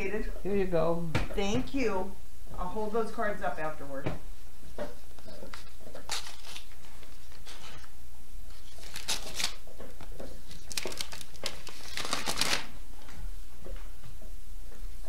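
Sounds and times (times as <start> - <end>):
paper and envelopes rustling: 4.9 - 7.9, 8.5 - 13.2.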